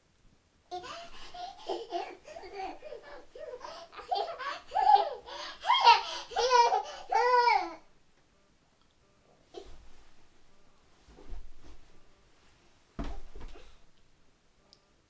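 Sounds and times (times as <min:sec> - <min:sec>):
toddler giggling and babbling: 0:00.7 - 0:07.8.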